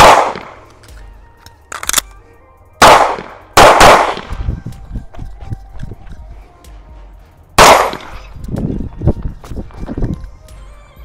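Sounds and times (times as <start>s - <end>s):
pistol shots: 0.0s - 0.7s, 2.8s - 4.4s, 7.6s - 8.2s
sharp high-pitched crack: 0.0s - 0.7s, 2.8s - 4.5s, 7.6s - 8.3s.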